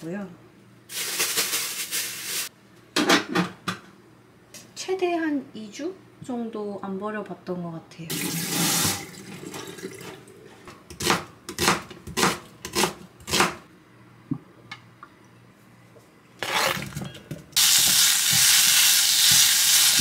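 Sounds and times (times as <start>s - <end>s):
food sizzling in a hot pot: 17.6s - 20.0s.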